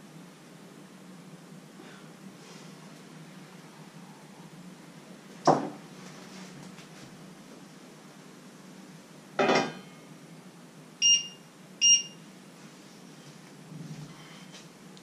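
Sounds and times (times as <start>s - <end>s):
kitchenware clanking: 9.4s - 9.8s
short electronic beeps: 11.0s - 12.2s.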